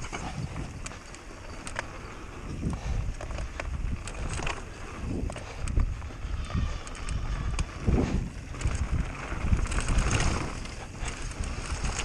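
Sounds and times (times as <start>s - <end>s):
low rumbling from rough ground: 0.0s - 12.0s
wind buffeting microphone: 0.0s - 12.0s
bike knocks and rattles: 2.6s - 6.2s, 6.8s - 12.0s.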